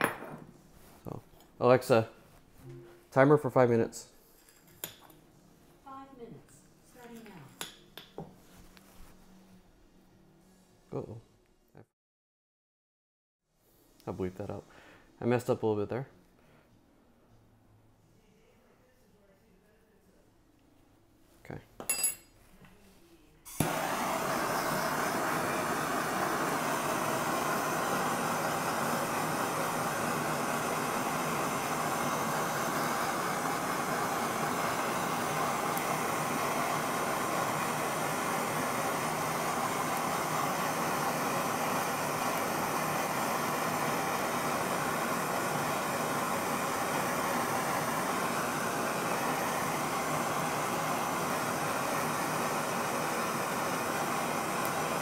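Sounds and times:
blowtorch flame hissing: 23.5 - 55.0
blowtorch lighting click: 23.5 - 55.0.

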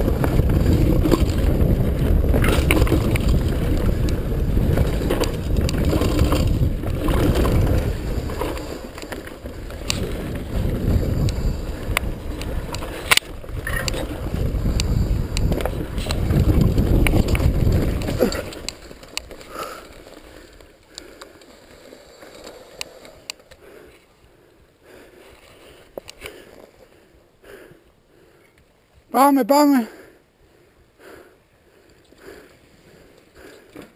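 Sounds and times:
wind rushing on microphone: 0.0 - 18.8
bike rattling and knocking: 0.0 - 21.5
faint clicks: 25.3 - 26.7.

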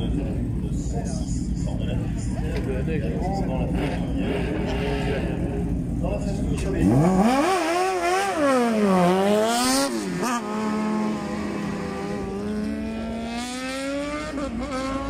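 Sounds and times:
race car accelerating through gears: 6.8 - 15.0.

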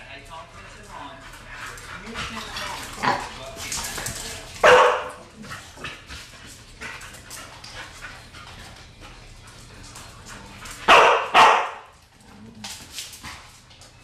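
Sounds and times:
dog barking: 4.6 - 5.2, 10.9 - 11.9.

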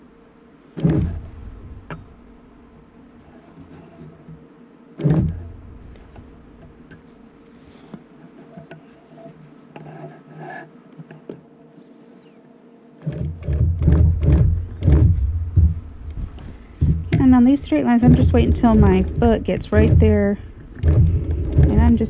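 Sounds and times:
machine rumbling and knocking: 0.8 - 2.3, 5.0 - 7.0, 13.1 - 22.0.

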